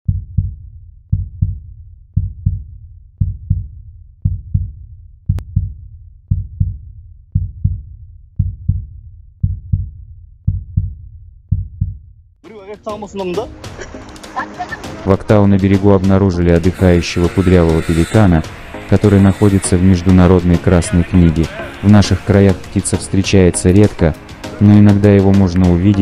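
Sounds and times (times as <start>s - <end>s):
heartbeat low double thumps: 0.0s - 12.4s.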